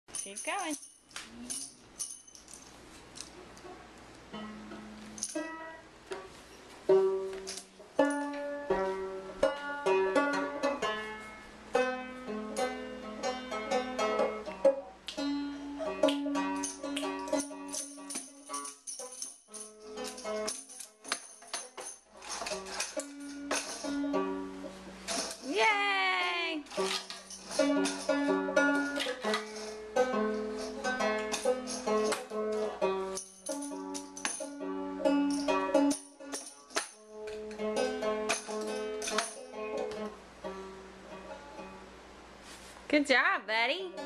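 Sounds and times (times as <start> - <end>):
tambourine jingling: 0.0 - 3.2, 5.1 - 5.7, 16.2 - 24.4, 25.0 - 25.8, 26.7 - 39.8
banjo picking a tune: 4.3 - 18.0, 22.7 - 25.1, 27.5 - 36.3, 37.1 - 42.2.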